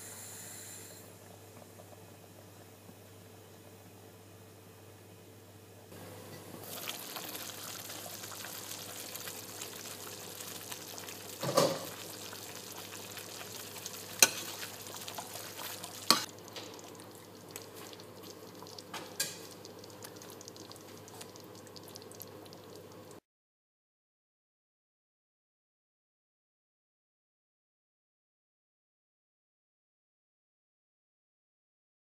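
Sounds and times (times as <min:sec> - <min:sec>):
curry bubbling and sizzling in pot: 0:06.4 - 0:23.2.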